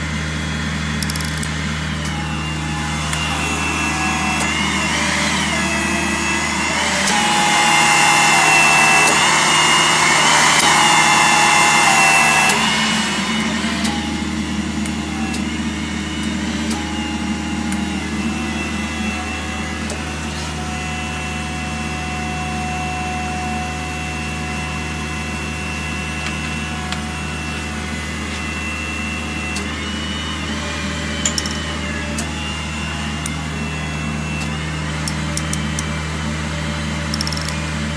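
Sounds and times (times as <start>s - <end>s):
hydraulic pump motor drone: 0.0s - 37.9s
sharp clicks: 1.0s - 2.2s, 35.1s - 35.9s.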